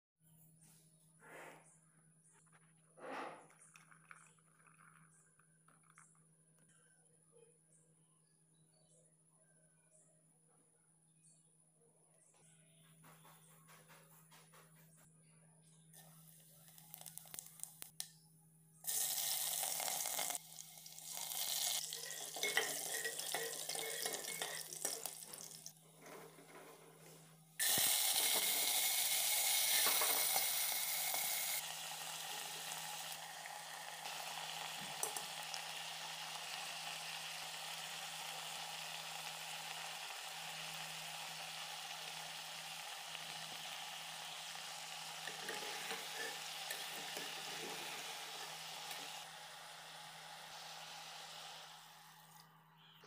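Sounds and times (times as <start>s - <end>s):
hot oil sizzling: 16.7s - 17.9s, 18.8s - 52.8s.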